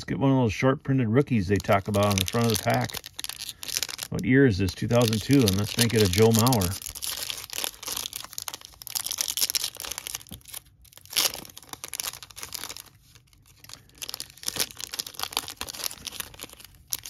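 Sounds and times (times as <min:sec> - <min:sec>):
foil wrapper tearing and crinkling: 0:01.5 - 0:17.0.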